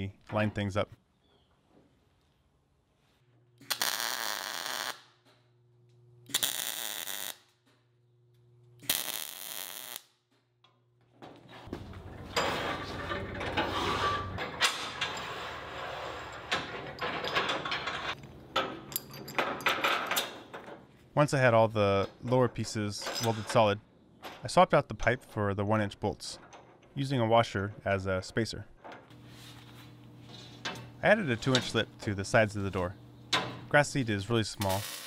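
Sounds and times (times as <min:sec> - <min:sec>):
welder welding: 0:03.6 - 0:05.1, 0:06.3 - 0:07.6, 0:08.8 - 0:10.2, 0:34.6 - 0:35.0
welding machine humming: 0:03.7 - 0:05.0, 0:06.3 - 0:07.5, 0:08.8 - 0:10.0, 0:34.6 - 0:35.0.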